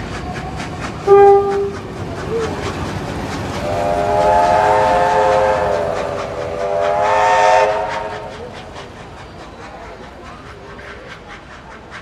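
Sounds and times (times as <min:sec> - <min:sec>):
train wheels clicking: 0:00.0 - 0:12.0
steam locomotive whistle: 0:01.0 - 0:02.5, 0:03.6 - 0:08.6.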